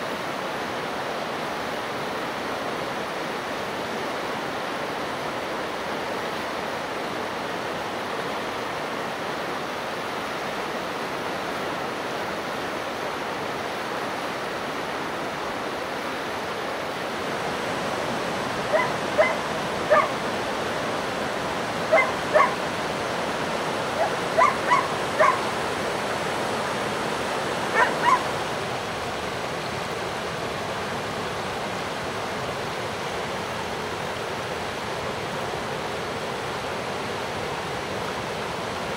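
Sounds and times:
river rushing: 0:00.0 - 0:38.9
dog barking: 0:18.7 - 0:20.2, 0:21.9 - 0:22.6, 0:24.0 - 0:25.5, 0:27.7 - 0:28.3.

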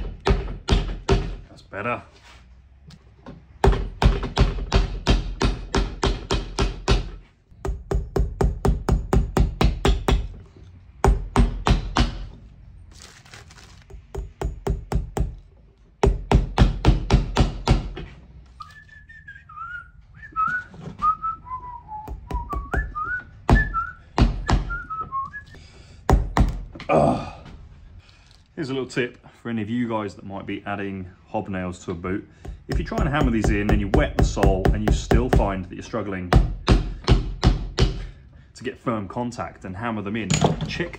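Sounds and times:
person whistling a tune: 0:18.6 - 0:25.6.

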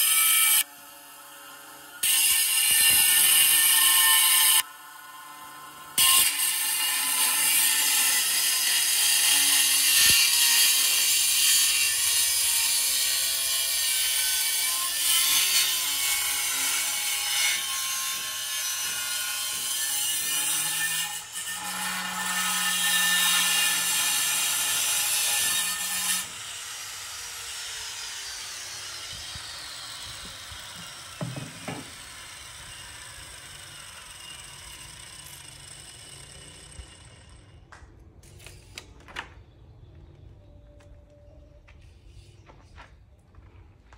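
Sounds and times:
angle grinder cutting tile: 0:00.0 - 0:37.7
knock: 0:31.2 - 0:31.8.

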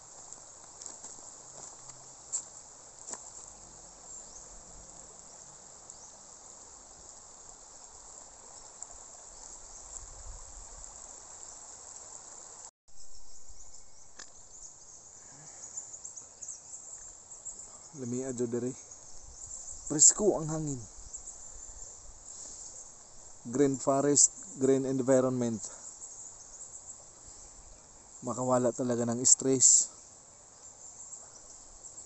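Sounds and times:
insects shrilling: 0:00.0 - 0:32.0.

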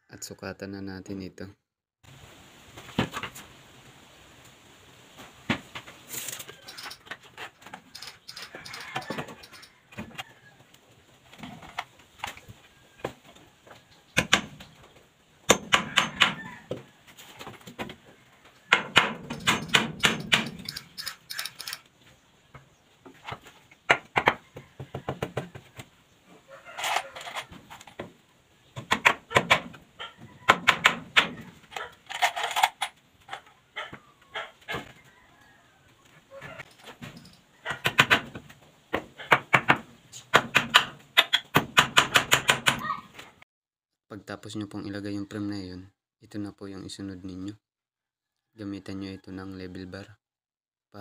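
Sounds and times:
hammer driving nails into wood: 0:14.2 - 0:14.6, 0:15.5 - 0:16.4, 0:18.7 - 0:21.8, 0:28.8 - 0:29.8, 0:30.5 - 0:31.4, 0:37.7 - 0:38.4, 0:39.3 - 0:42.9.

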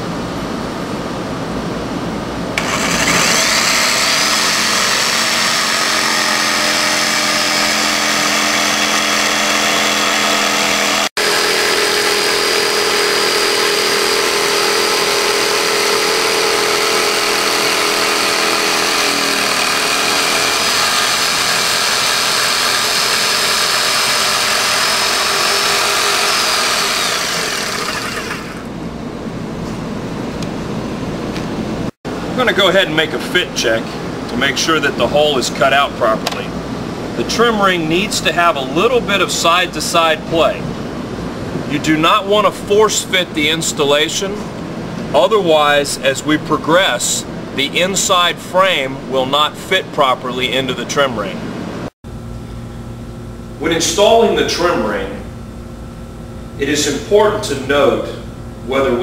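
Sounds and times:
jigsaw cutting plywood: 0:02.6 - 0:28.7.

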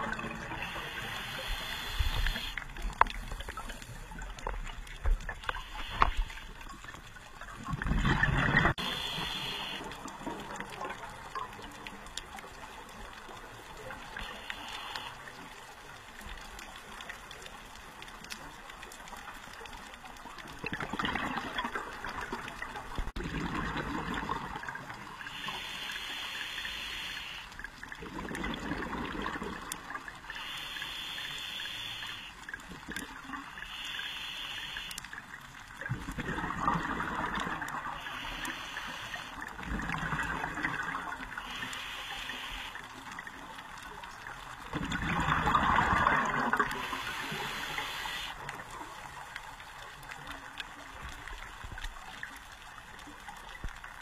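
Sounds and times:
exhaled bubbles gurgling: 0:00.0 - 0:14.2, 0:19.9 - 0:33.8, 0:34.9 - 0:54.0
regulator hiss on inhale: 0:00.5 - 0:04.1, 0:05.4 - 0:06.9, 0:08.8 - 0:10.2, 0:13.9 - 0:15.5, 0:25.2 - 0:27.7, 0:29.9 - 0:32.5, 0:33.4 - 0:35.3, 0:37.8 - 0:39.6, 0:41.3 - 0:43.2, 0:46.7 - 0:48.6.

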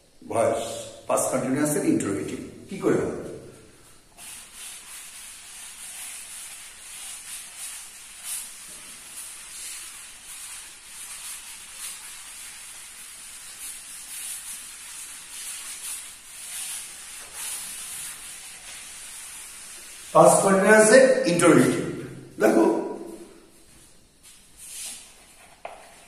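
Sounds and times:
duster wiping chalkboard: 0:00.4 - 0:26.0.

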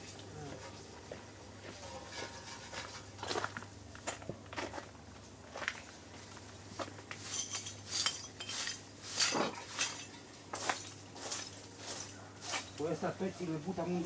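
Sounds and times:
small hard objects clinking: 0:07.2 - 0:13.0.

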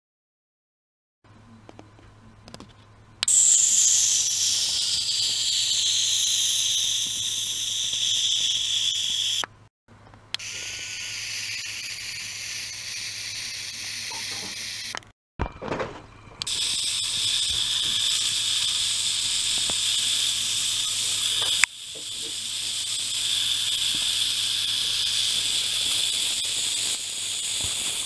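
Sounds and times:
high-pitched hiss in water: 0:03.3 - 0:09.4, 0:10.4 - 0:14.9, 0:16.5 - 0:28.0.

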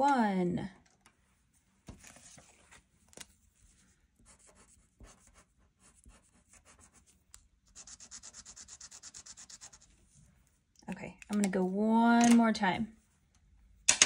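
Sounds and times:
marker scribbling on paper: 0:04.3 - 0:09.9.

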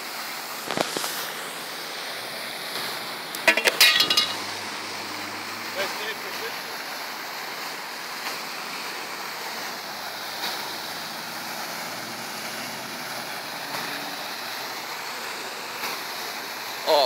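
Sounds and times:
fountain splashing into pool: 0:00.0 - 0:17.0.

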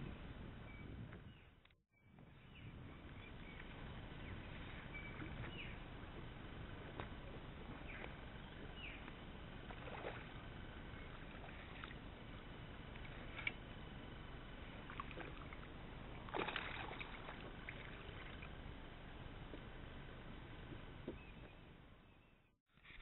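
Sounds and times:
water lapping against kayak hull: 0:02.9 - 0:19.8.

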